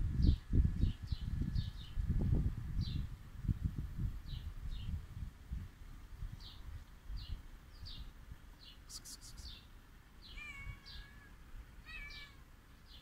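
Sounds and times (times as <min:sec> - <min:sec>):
small birds chirping: 0:00.2 - 0:02.1, 0:04.2 - 0:05.2, 0:06.3 - 0:13.0.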